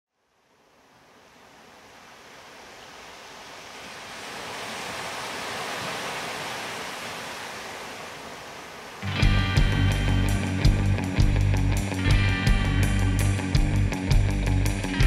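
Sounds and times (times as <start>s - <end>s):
ocean surf rushing: 0.9s - 11.4s.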